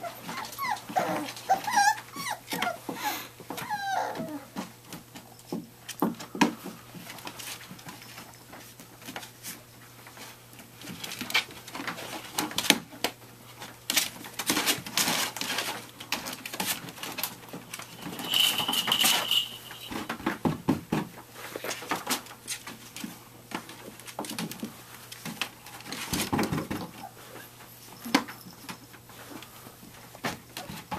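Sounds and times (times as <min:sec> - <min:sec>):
puppy squeak: 0:00.0 - 0:04.5
paws scratching on plastic: 0:00.0 - 0:05.3, 0:06.1 - 0:19.5.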